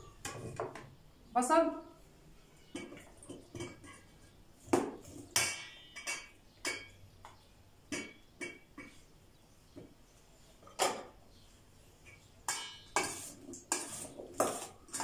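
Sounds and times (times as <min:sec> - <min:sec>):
spoon clinking against metal bowl: 0:05.4 - 0:07.0, 0:12.5 - 0:13.2
vegetables scraped into bowl: 0:13.0 - 0:15.0.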